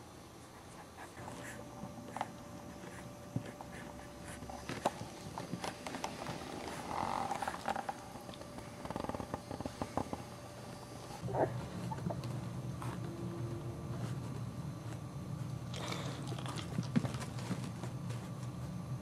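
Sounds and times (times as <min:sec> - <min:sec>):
puppy grunting: 0:11.2 - 0:12.3.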